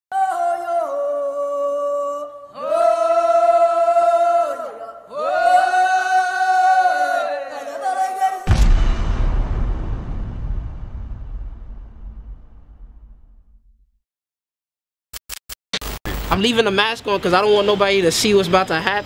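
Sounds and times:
choir-like voices singing: 0.2s - 8.5s.

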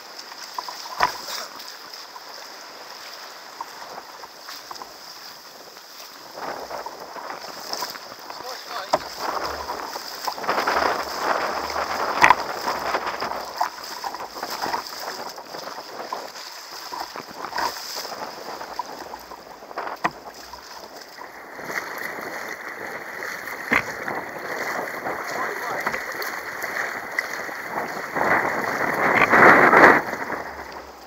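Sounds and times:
paddle blades dipping: 0.0s - 31.0s
water sloshing against kayak hull: 0.0s - 31.0s
sharp water slaps: 0.7s - 1.6s, 7.8s - 30.8s
wind on microphone: 5.6s - 31.0s.

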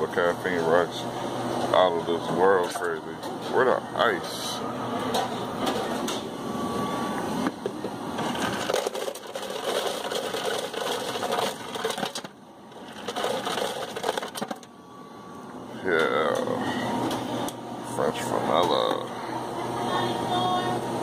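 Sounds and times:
ice rattling into plastic cup: 8.3s - 14.7s.

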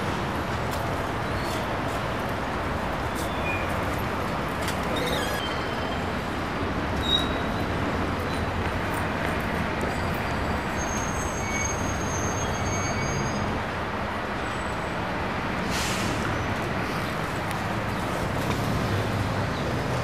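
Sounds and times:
city street traffic: 0.0s - 20.0s
short hiss: 15.6s - 16.2s.

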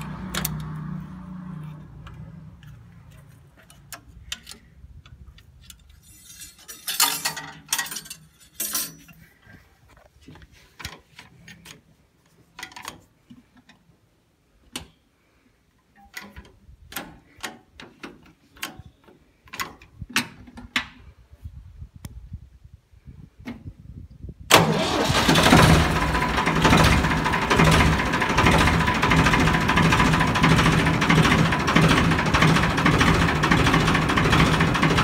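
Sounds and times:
metallic clicks of tractor levers: 0.0s - 1.0s, 1.7s - 9.3s, 10.8s - 11.9s, 12.5s - 13.9s, 14.6s - 15.0s, 15.8s - 21.0s.

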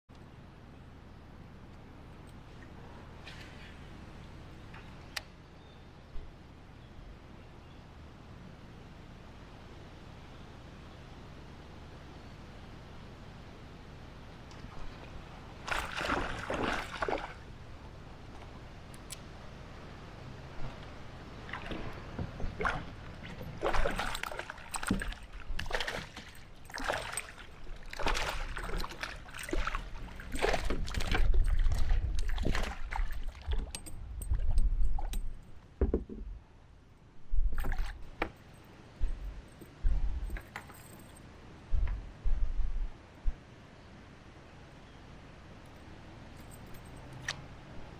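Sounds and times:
fish splashing in water: 15.6s - 17.5s, 21.4s - 33.7s.

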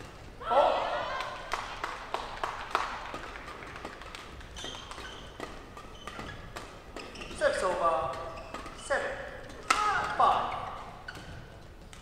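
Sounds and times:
scattered claps and taps: 1.5s - 4.6s
shoes squeaking on floor: 4.4s - 12.0s.

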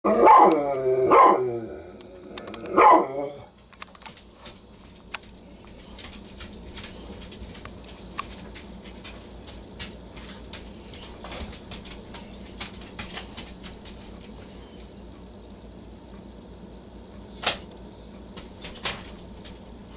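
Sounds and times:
dog barking: 0.1s - 1.5s, 2.8s - 3.4s.

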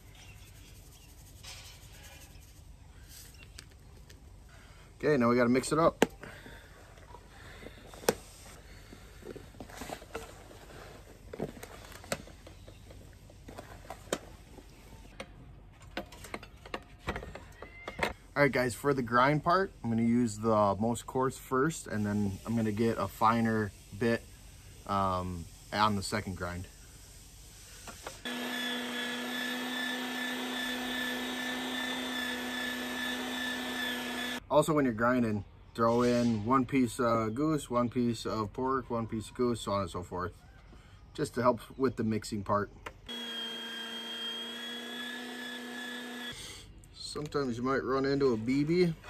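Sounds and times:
electric meat grinder running: 28.3s - 34.4s, 43.1s - 46.4s.

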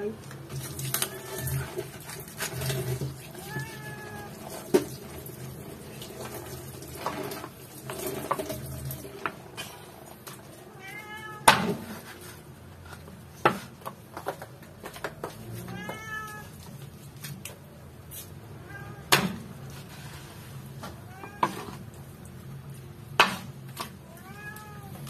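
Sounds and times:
cat meowing: 0.9s - 1.8s, 3.2s - 4.5s, 10.7s - 11.5s, 15.6s - 16.6s, 18.6s - 19.1s, 21.0s - 21.8s, 24.0s - 25.0s.

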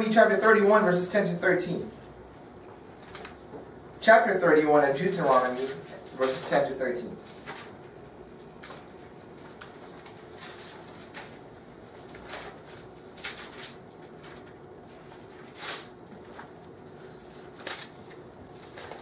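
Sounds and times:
pages rustling: 3.0s - 3.5s, 5.2s - 7.9s, 8.5s - 19.0s.

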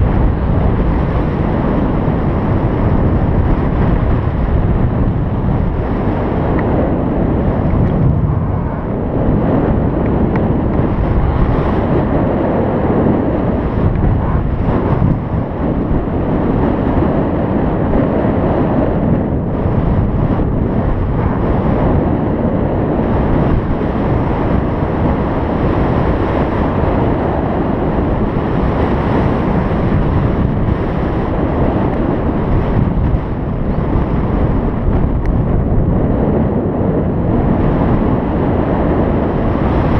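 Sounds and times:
wind rushing over microphone: 0.0s - 39.9s.

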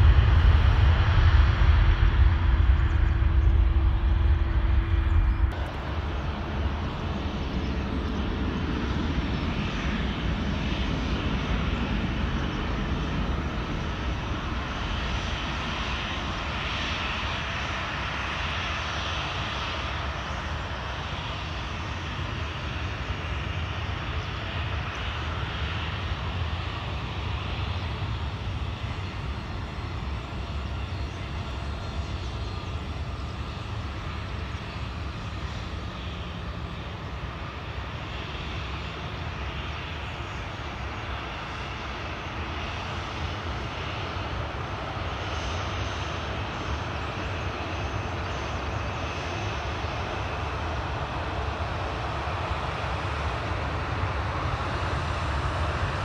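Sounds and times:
airliner engines rumbling: 0.0s - 56.0s.

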